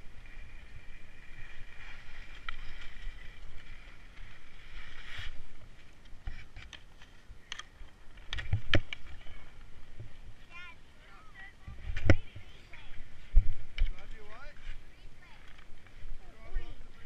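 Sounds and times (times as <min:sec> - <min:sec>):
sharp clicks of skis or poles: 0:06.0 - 0:09.1.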